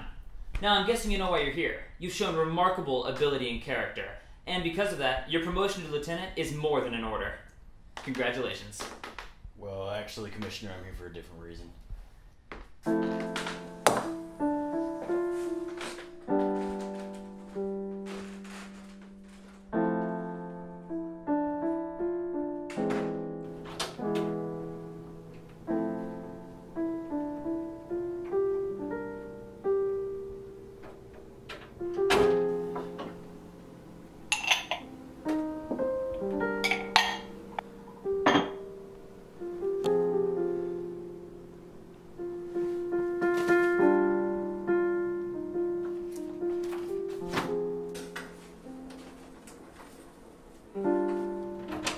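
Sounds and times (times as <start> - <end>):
slow solo piano: 12.8 - 51.9.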